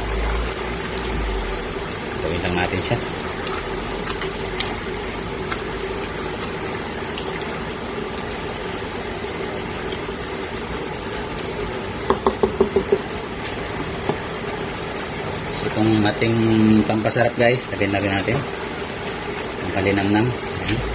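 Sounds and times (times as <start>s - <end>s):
mechanical hum: 0.0s - 20.9s
spatula stirring food in pot: 2.9s - 10.1s
spatula tapping pot: 12.1s - 13.1s.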